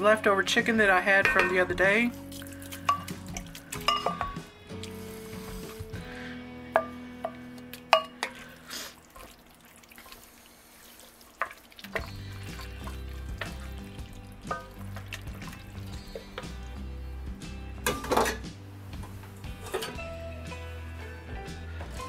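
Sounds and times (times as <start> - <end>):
background music: 0.0 - 9.8, 11.8 - 22.0
spoon knocking against pot: 1.2 - 1.7, 3.8 - 4.5, 6.7 - 8.4
wooden spoon stirring thick sauce: 1.2 - 6.2, 8.2 - 16.8.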